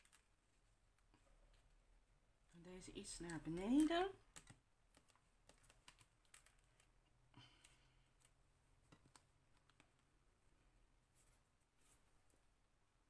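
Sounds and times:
paper card clicks and taps: 3.2 - 6.9.

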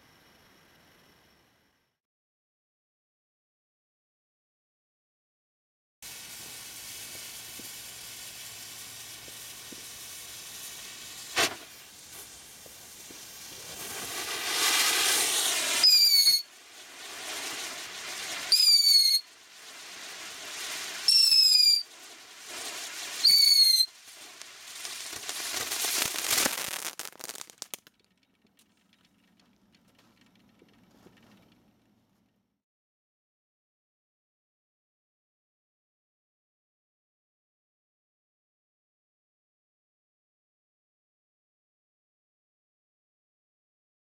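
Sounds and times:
firework fiery hiss: 6.0 - 27.9
firework whistles: 6.0 - 27.9
firework bang: 9.2 - 27.9.

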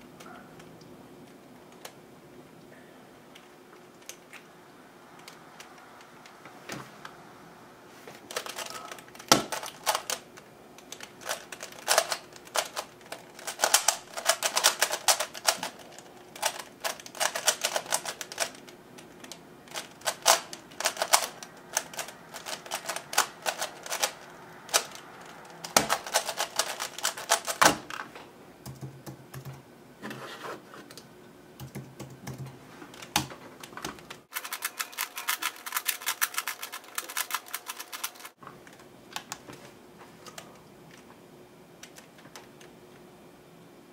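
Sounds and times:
puzzle cube clicking: 10.8 - 25.0, 34.3 - 38.4.

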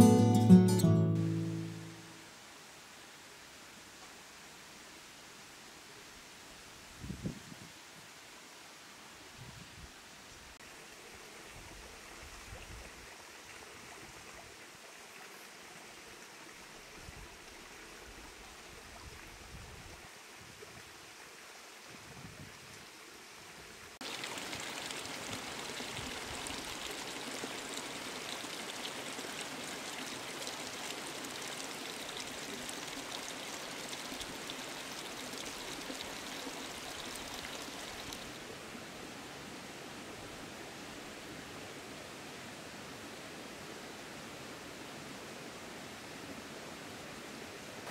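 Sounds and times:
stream water rushing: 0.0 - 6.8, 10.6 - 47.9.

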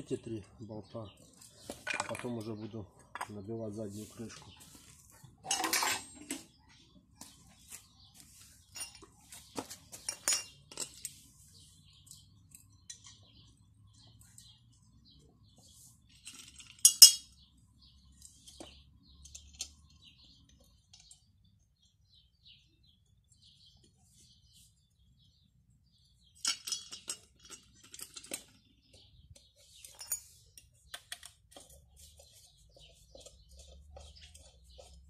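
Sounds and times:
metal parts clinking: 5.4 - 6.2, 10.0 - 11.2, 16.1 - 17.3, 26.4 - 28.6, 29.7 - 31.2.

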